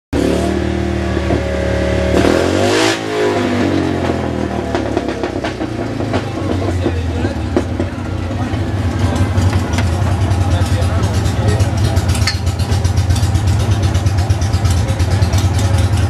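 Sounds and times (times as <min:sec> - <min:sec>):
car engine running and revving: 0:00.2 - 0:16.0.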